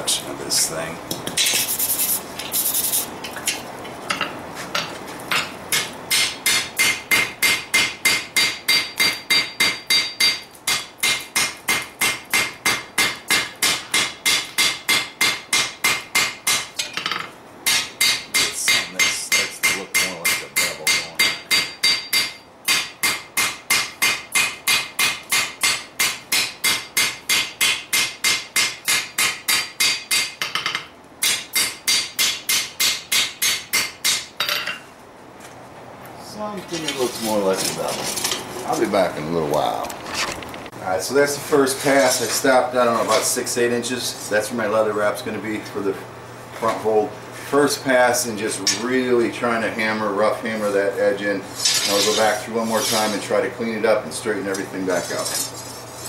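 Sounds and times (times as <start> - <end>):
hammer striking steel on anvil: 4.1 - 34.8.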